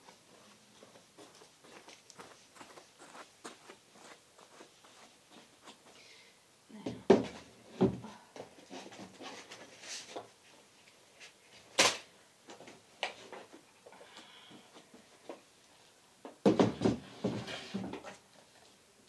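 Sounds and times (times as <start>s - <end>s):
wooden drawers knocking and scraping: 16.4s - 18.1s.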